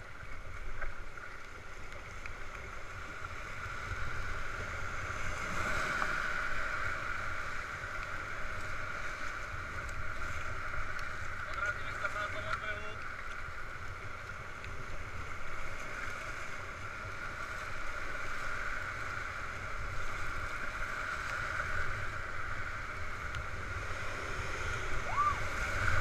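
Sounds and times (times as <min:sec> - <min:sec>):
wind rumbling on microphone: 0:00.0 - 0:26.0
whitewater rushing: 0:24.0 - 0:26.0.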